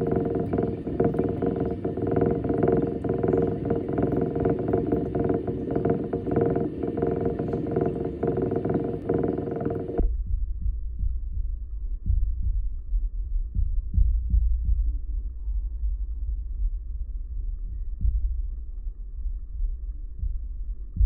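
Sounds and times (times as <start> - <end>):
mechanical hum: 0.0 - 10.1
low throbbing rumble: 0.0 - 21.0.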